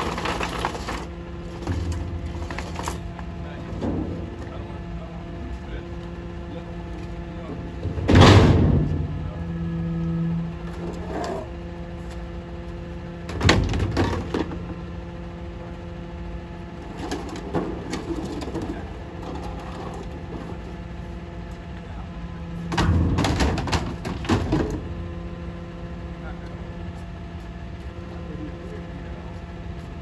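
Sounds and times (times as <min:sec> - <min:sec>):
plastic toys clattering: 0:00.0 - 0:01.1
garbage truck engine idling: 0:00.0 - 0:28.4.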